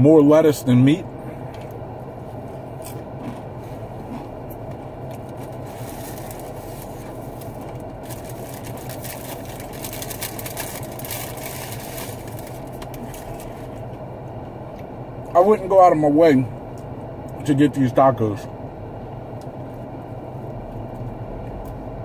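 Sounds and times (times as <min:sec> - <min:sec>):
car engine idling: 0:00.0 - 0:22.0
paper wrapper rustling: 0:05.5 - 0:13.7.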